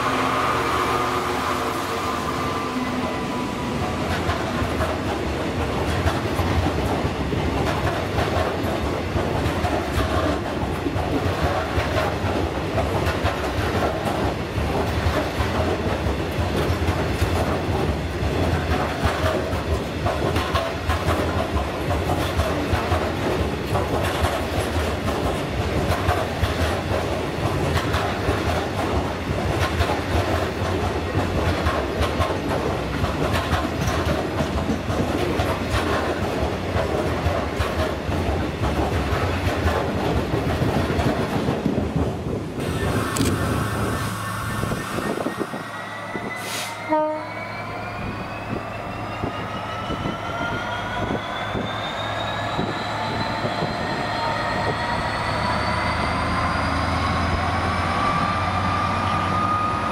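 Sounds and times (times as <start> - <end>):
train wheels clattering on rails: 0.0 - 47.2
low rumble of train: 0.0 - 59.9.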